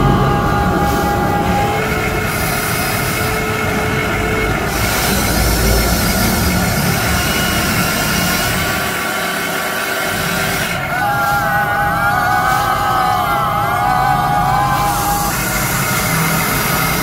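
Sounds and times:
low rumble: 0.0 - 9.0
electric motors and gears whining: 0.0 - 17.0.

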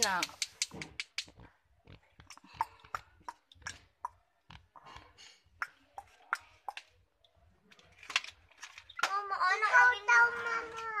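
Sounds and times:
plastic toy pieces clicking: 7.7 - 9.3.

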